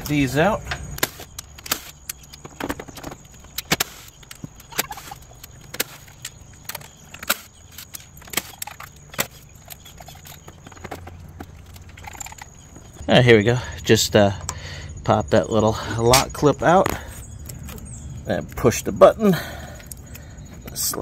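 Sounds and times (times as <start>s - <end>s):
low steady hum: 0.0s - 21.0s
plastic car parts clicking: 0.6s - 13.0s.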